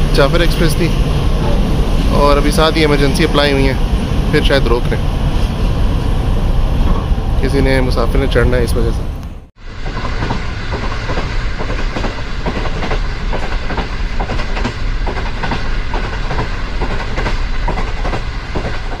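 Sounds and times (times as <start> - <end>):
train wheels rumbling: 0.0 - 19.0
clickety-clack over rail joints: 9.8 - 19.0.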